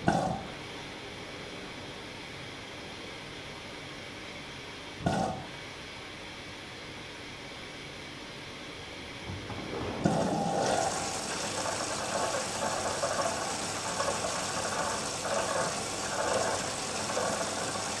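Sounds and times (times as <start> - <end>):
water pouring into washing machine: 9.8 - 18.0.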